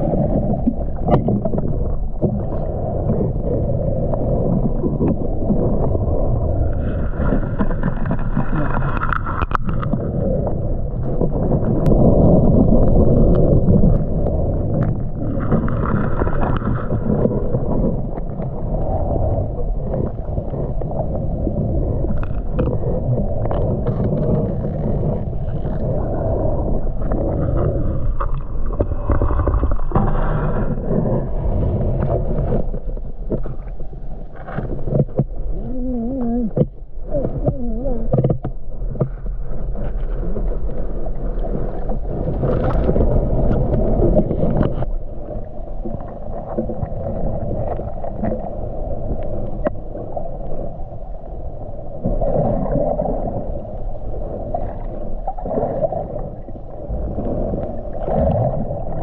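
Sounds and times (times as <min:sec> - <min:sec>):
muffled underwater water sloshing: 0:00.0 - 0:59.0.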